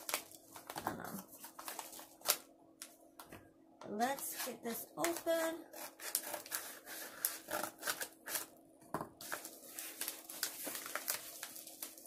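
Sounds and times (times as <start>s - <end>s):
paper crinkling and rustling: 0.0s - 2.5s, 4.2s - 8.5s, 9.2s - 12.0s
scissors snipping paper: 4.4s - 8.5s.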